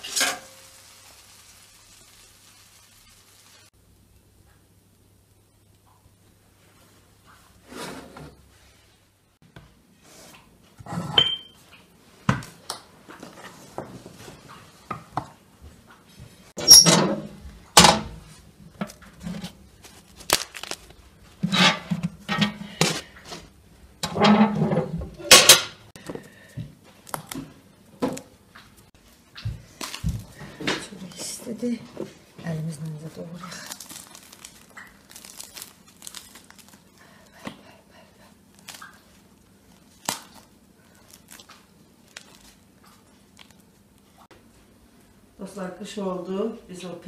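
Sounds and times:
metal cookware clanking: 0:00.0 - 0:00.7, 0:16.6 - 0:18.2, 0:21.4 - 0:23.2, 0:24.0 - 0:25.8.

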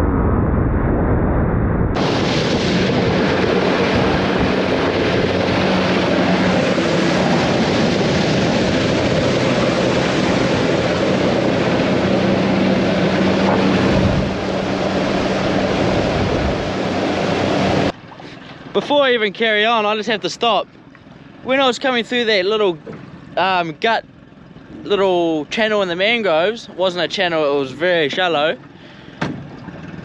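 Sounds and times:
rushing wind: 0:00.0 - 0:18.8
water noise: 0:00.0 - 0:30.0
boat motor running: 0:02.0 - 0:30.0.

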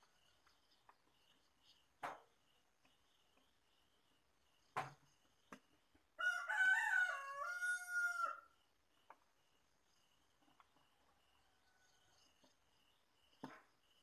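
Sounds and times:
rooster crowing: 0:06.2 - 0:08.5.

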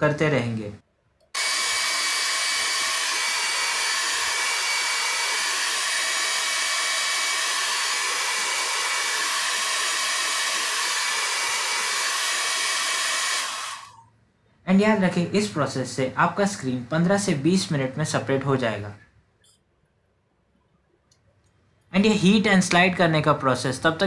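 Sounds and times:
hair dryer blowing: 0:01.4 - 0:14.0.

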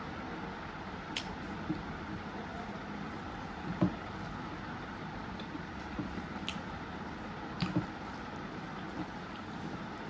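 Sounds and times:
steady background noise: 0:00.0 - 0:10.0.

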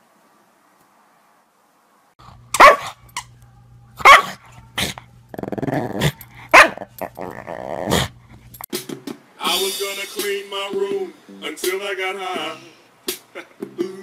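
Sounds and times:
small dog barking: 0:02.6 - 0:03.0, 0:04.0 - 0:04.4, 0:06.5 - 0:07.0
dog growling: 0:04.8 - 0:08.6.

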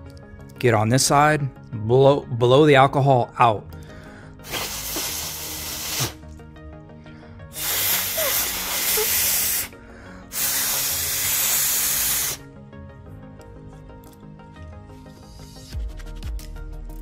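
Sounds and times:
person blowing hard by mouth: 0:04.4 - 0:06.3, 0:07.5 - 0:12.4.

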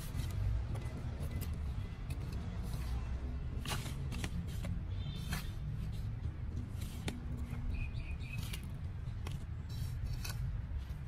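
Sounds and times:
metal trowel scraping soil: 0:09.5 - 0:11.0.

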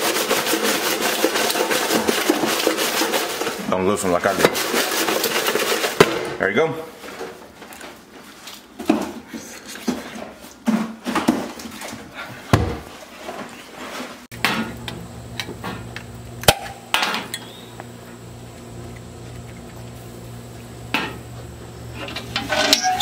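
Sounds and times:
steady low hum: 0:14.3 - 0:23.0
metal kitchenware clinking: 0:22.0 - 0:23.0.

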